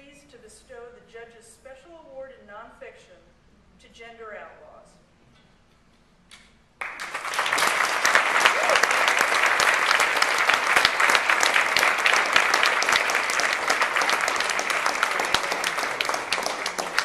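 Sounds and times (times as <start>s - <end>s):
audience applauding: 6.8s - 17.0s.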